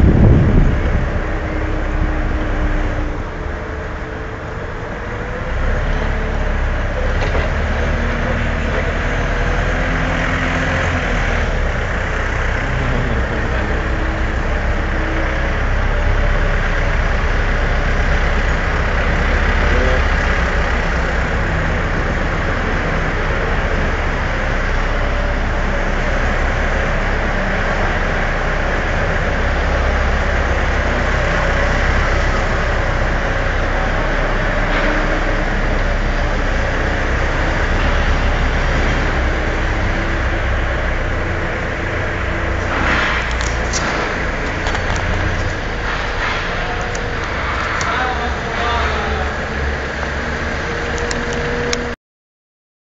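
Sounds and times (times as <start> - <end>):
forklift engine rumbling: 0.0 - 52.0.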